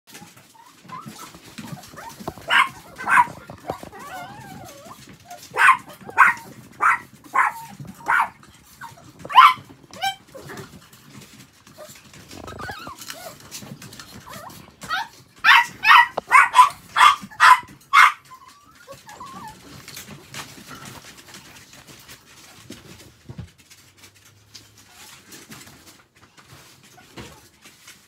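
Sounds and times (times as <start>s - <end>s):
dog whining: 0.1s - 10.8s, 11.8s - 20.0s
small dogs yapping: 0.1s - 22.8s.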